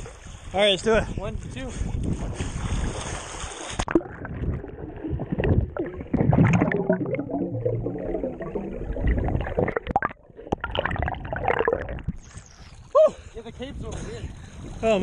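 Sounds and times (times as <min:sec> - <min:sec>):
water sloshing: 0:02.2 - 0:12.9
underwater knocks and clicks: 0:03.8 - 0:12.3
underwater gurgling and bubbling: 0:03.8 - 0:12.7.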